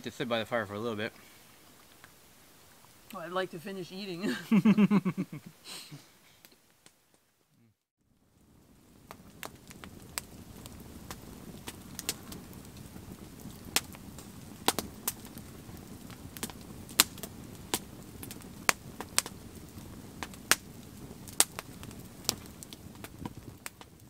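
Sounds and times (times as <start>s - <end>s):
campfire crackling and popping: 0.0s - 24.0s
low fire hiss: 0.0s - 24.0s.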